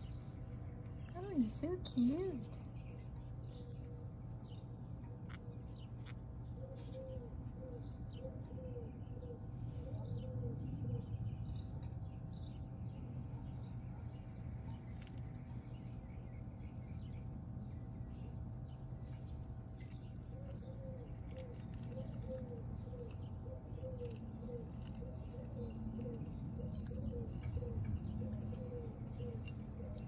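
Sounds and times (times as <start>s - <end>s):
birds chirping: 0.0s - 30.0s
steady low hum: 0.0s - 30.0s
dove cooing: 6.6s - 11.0s, 20.3s - 30.0s.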